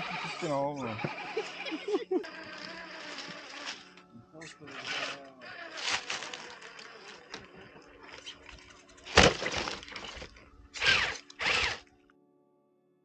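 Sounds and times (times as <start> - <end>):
toy truck crashing impact: 2.4 - 4.0, 4.8 - 7.6, 9.0 - 11.8
clattering and rustling leaves: 2.4 - 11.7.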